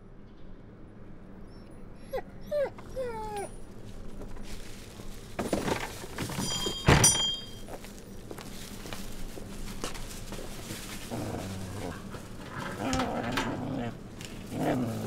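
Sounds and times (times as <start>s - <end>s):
dog whining: 1.4s - 3.8s, 11.1s - 15.0s.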